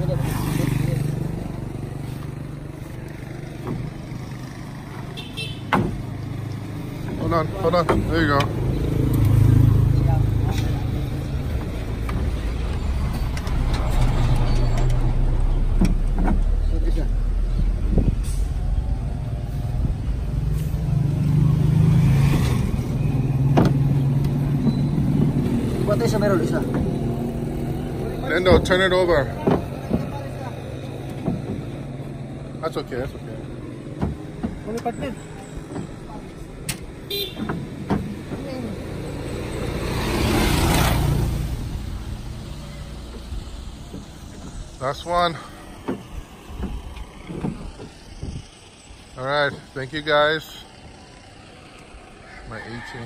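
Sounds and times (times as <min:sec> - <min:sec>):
vehicle engine idling: 0:00.0 - 0:53.0
wooden door frames knocking: 0:33.9 - 0:34.8, 0:37.3 - 0:38.5.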